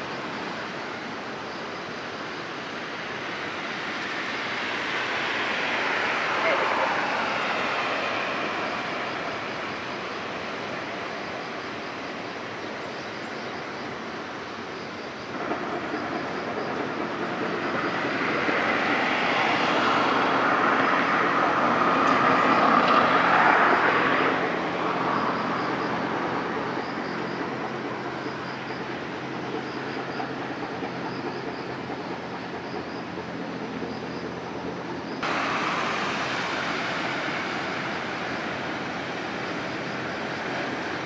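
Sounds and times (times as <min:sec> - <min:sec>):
vehicle passing close by: 0:04.2 - 0:10.2, 0:17.9 - 0:26.6.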